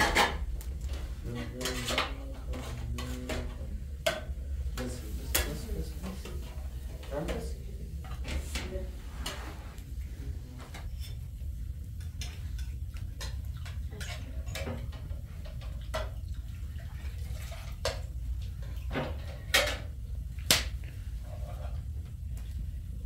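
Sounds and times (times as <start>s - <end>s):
steady low rumble: 2.2s - 15.8s, 20.0s - 23.0s.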